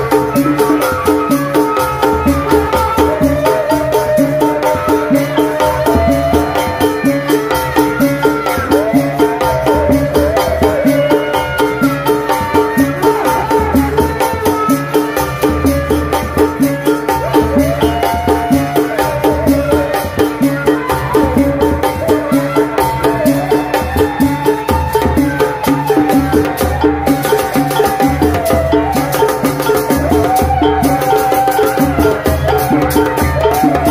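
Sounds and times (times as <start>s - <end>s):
fast drum beat: 0.0s - 33.9s
wavering melody: 0.0s - 33.9s.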